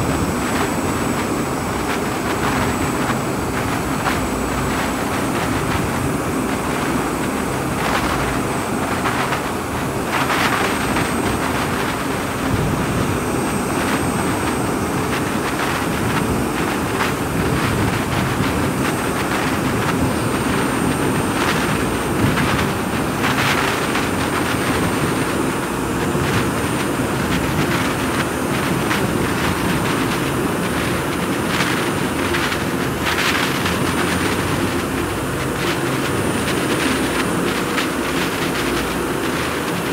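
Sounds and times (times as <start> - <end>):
high-speed flight roar: 0.0 - 39.9.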